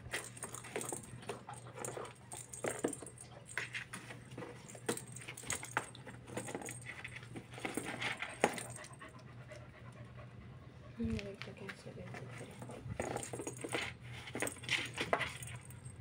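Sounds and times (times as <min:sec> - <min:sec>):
cat ball bell jingling: 0:00.0 - 0:09.2, 0:12.3 - 0:16.0.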